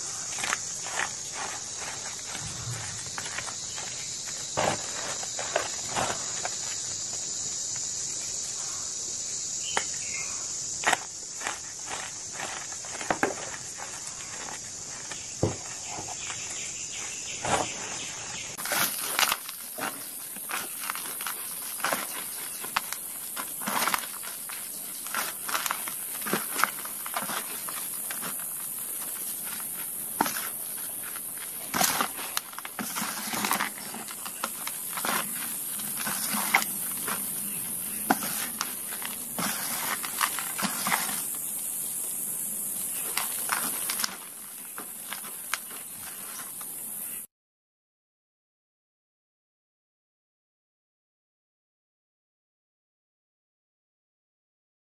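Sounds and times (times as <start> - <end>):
chalk powder crunching: 0.0 - 6.8, 18.6 - 41.6.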